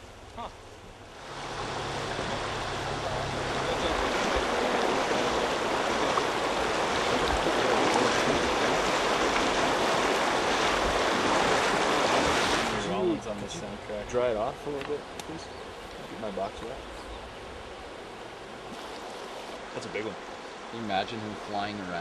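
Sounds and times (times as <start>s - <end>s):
river water rushing over stones: 1.1s - 13.6s.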